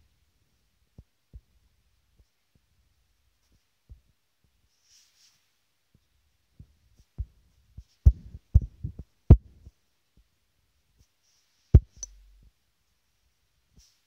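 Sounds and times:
fingers tapping touchscreen: 11.8s - 12.3s.

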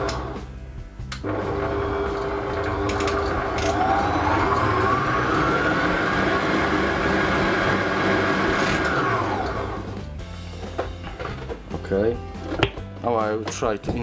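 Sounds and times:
stand mixer motor whine: 1.2s - 10.0s.

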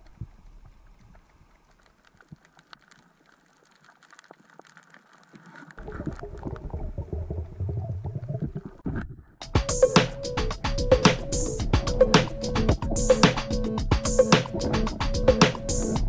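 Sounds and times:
faint underwater clicks: 0.0s - 9.1s
rumbling crackling water noise: 0.0s - 9.4s, 11.6s - 16.0s.

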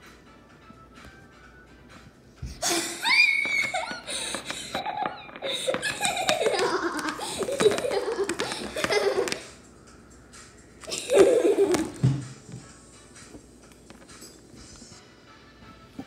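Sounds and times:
high-pitched giggling laughter: 2.6s - 9.5s, 10.9s - 12.0s.

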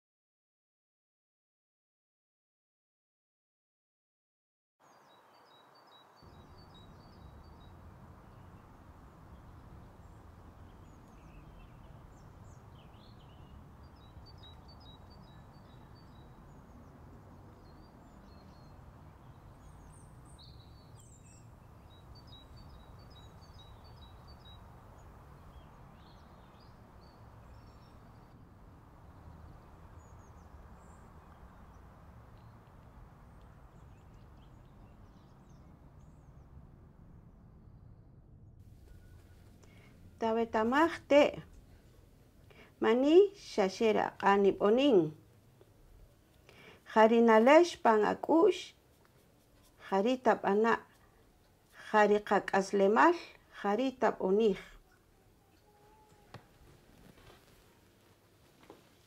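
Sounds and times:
birds chirping: 4.9s - 37.0s
background hiss: 38.6s - 59.0s.

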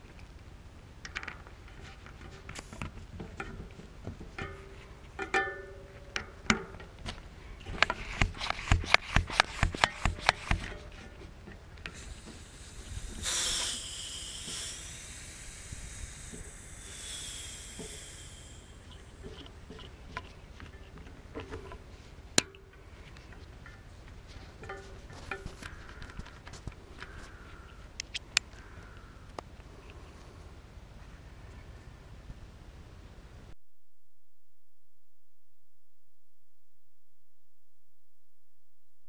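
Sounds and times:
inflator head clicking: 7.7s - 10.8s, 11.8s - 18.6s
gas hissing through valve: 11.9s - 18.9s.

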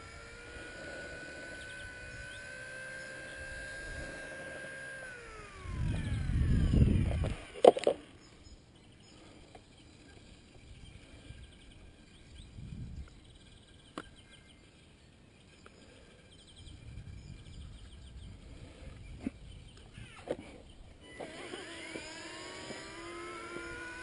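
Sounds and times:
helicopter motor winding down: 0.0s - 12.5s, 19.8s - 24.0s.

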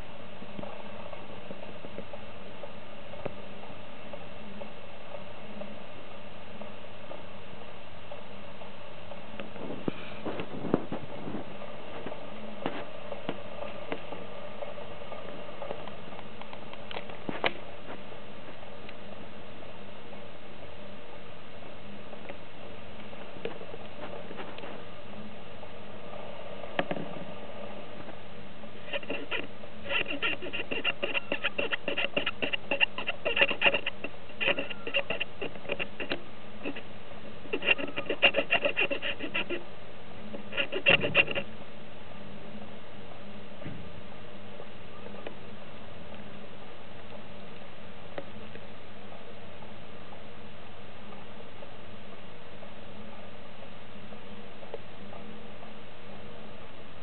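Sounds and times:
steady low hiss: 0.0s - 57.0s
scratching and tapping on hard surface: 28.9s - 36.8s, 37.5s - 39.6s, 40.5s - 41.5s.

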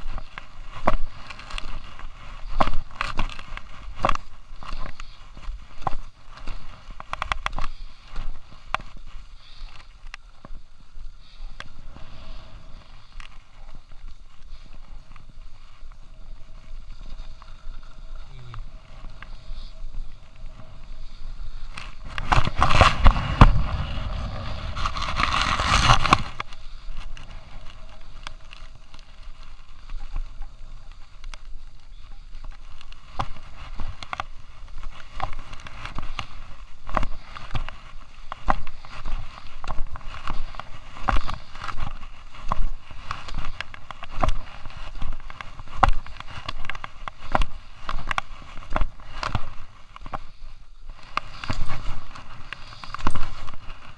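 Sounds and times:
skis scraping over snow: 0.0s - 53.9s
wind on microphone: 11.6s - 53.9s.

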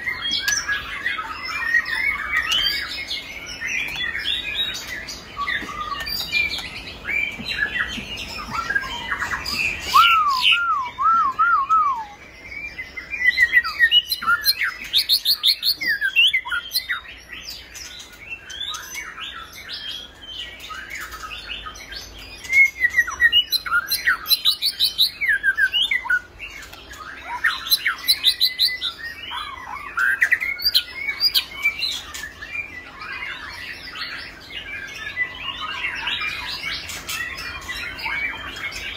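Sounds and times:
bird singing whistles and trills: 0.0s - 38.9s.

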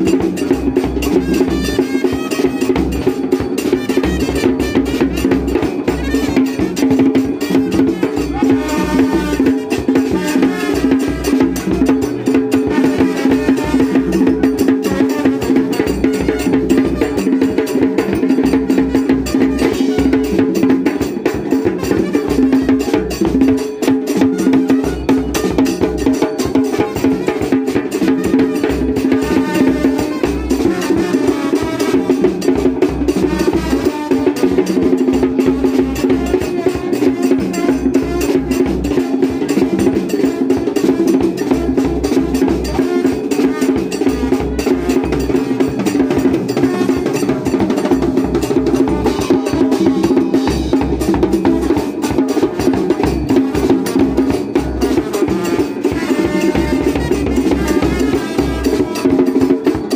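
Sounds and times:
percussion-heavy dance music: 0.0s - 59.9s.

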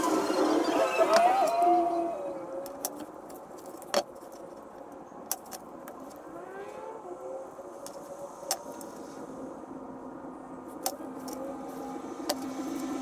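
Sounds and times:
faint rising and falling tone: 0.0s - 4.8s, 5.9s - 13.0s.

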